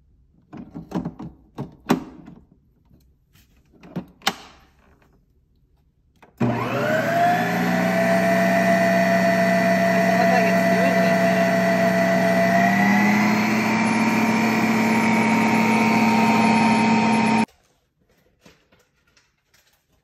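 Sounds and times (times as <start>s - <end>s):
ice cream maker whining: 6.4s - 17.5s.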